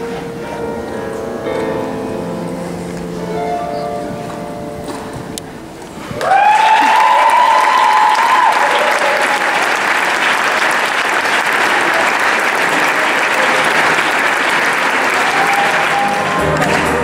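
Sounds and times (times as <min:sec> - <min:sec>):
audience clapping: 0:06.1 - 0:17.0.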